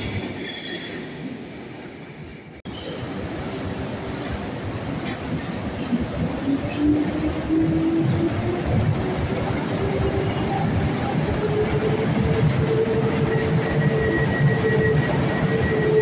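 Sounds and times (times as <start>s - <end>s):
train rumble: 0.0s - 16.0s
electric locomotive whine: 6.4s - 16.0s.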